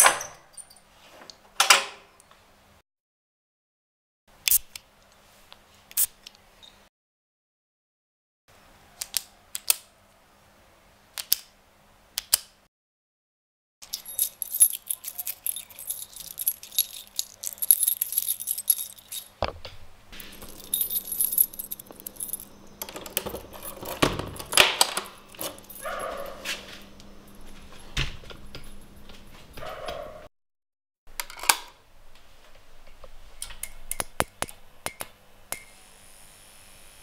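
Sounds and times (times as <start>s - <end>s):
keys jangling: 13.8s - 19.4s, 20.2s - 30.1s.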